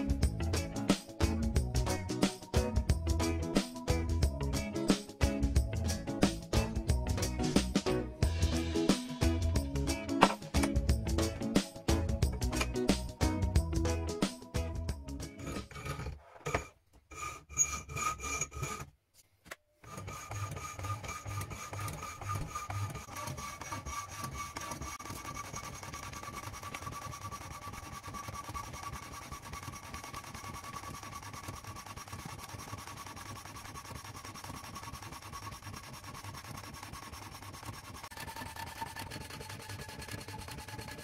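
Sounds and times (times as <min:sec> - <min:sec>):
machine rasping material: 0:15.2 - 0:18.9, 0:19.8 - 0:41.0.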